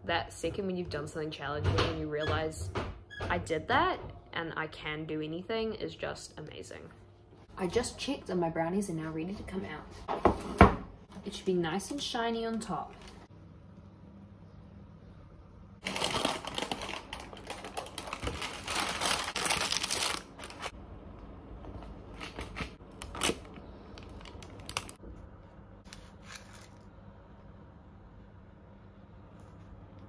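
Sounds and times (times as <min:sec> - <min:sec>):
baking paper crinkling: 0:15.8 - 0:20.8, 0:21.7 - 0:25.0, 0:25.9 - 0:26.9.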